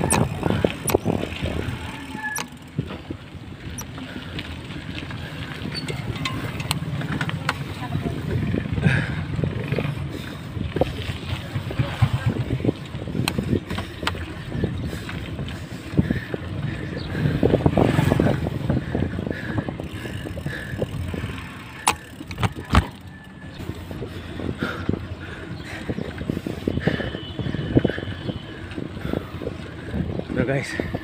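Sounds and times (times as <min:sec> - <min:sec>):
bike knocks and rattles: 0:00.0 - 0:03.1, 0:19.8 - 0:23.1
bicycle tyre rumble: 0:00.0 - 0:31.0
wind rushing over microphone: 0:00.0 - 0:31.0.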